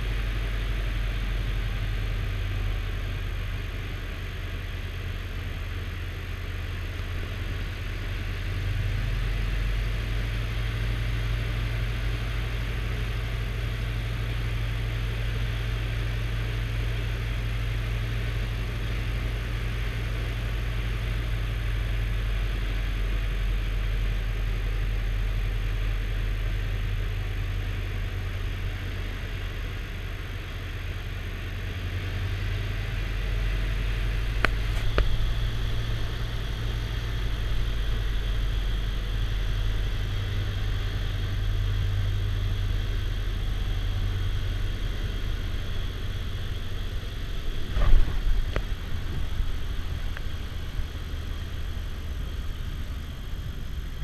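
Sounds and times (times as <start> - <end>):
aircraft engine from cabin: 0.0 - 54.0
loud jolt: 47.6 - 50.1.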